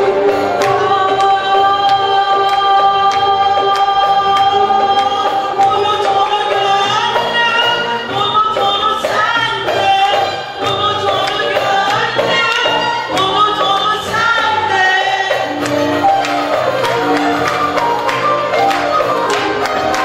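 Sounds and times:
violin and ensemble: 0.0 - 20.0
choir singing: 11.1 - 20.0.

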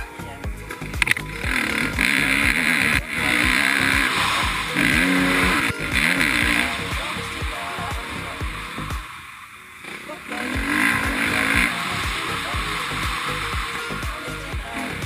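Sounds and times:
music with steady beat: 0.0 - 9.2, 10.4 - 15.0
dirt bike engine revving: 0.0 - 15.0.

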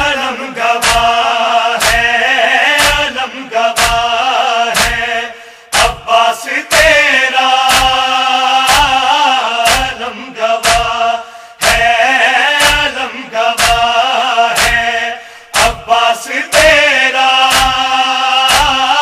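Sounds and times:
rhythmic chest-beating: 0.0 - 19.0.

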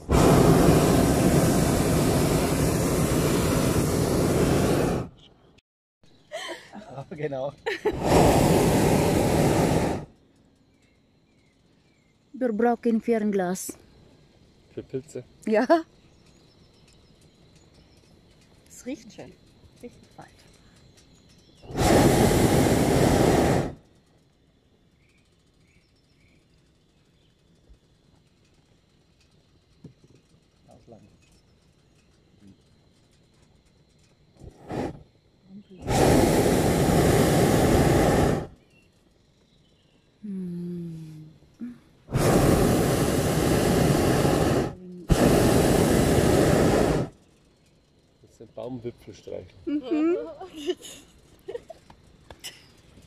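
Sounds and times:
propane burner blast: 0.0 - 5.2, 7.6 - 10.2, 21.6 - 24.0, 34.3 - 35.2, 35.8 - 38.7, 42.0 - 48.0
propane burner blasts: 0.0 - 5.3, 6.9 - 40.2, 41.9 - 53.0.

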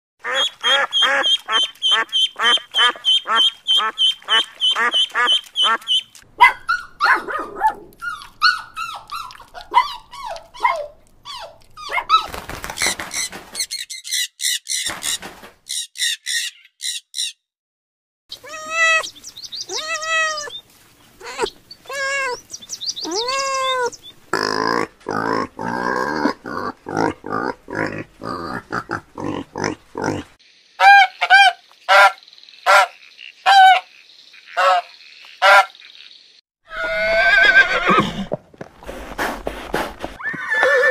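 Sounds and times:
geese honking: 0.2 - 6.1, 30.8 - 35.8
puppies squealing: 6.4 - 7.3, 8.0 - 12.4, 18.4 - 19.1, 19.7 - 20.6, 21.2 - 22.4
noisy animal sounds: 18.3 - 38.2
kitten meowing: 19.7 - 20.6, 23.0 - 24.0.

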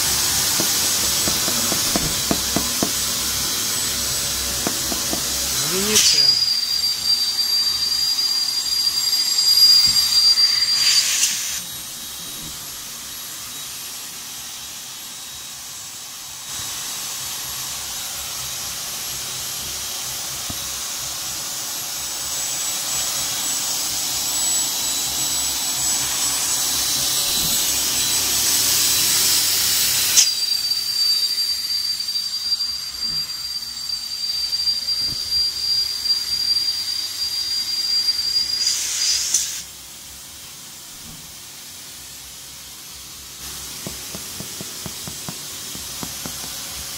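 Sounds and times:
air hissing: 0.0 - 11.7, 26.0 - 39.7, 43.1 - 46.9
electric air pump whining: 0.0 - 46.9.

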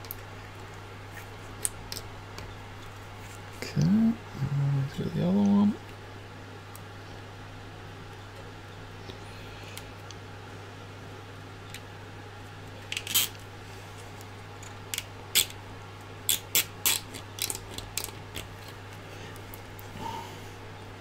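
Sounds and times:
zip ties clicking: 16.3 - 18.4.

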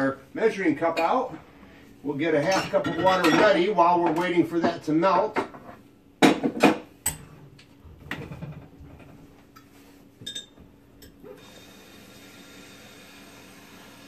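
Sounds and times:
faint steady hum: 0.0 - 14.0
pots and pans clattering: 2.4 - 3.7.

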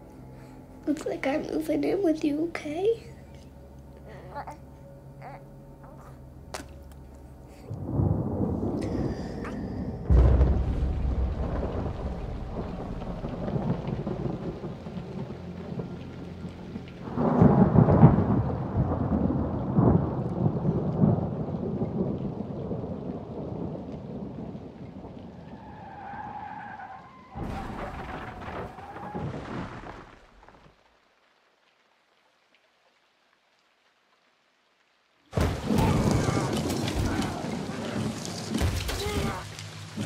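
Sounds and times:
rain: 0.0 - 40.0
thunder rumbling: 7.6 - 30.6, 35.3 - 40.0.

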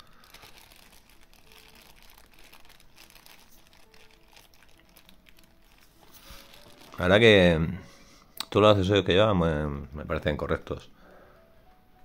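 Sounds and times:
faint rustling and crinkling: 0.0 - 7.9.

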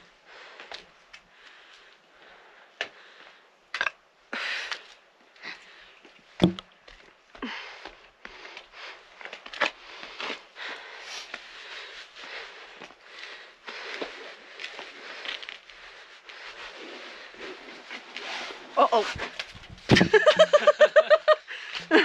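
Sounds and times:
sharp knocks on rock: 6.4 - 6.7
person breathing hard: 9.8 - 17.6, 21.4 - 22.0.

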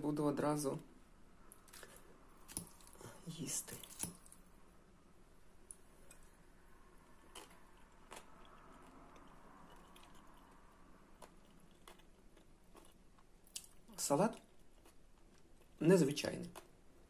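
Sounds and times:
chewing crunchy vegetables: 7.1 - 16.8.

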